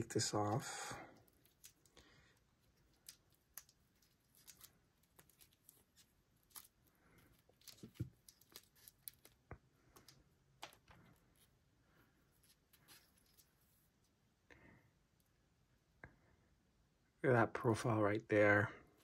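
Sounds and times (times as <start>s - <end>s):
plastic film crinkling: 1.2s - 10.9s.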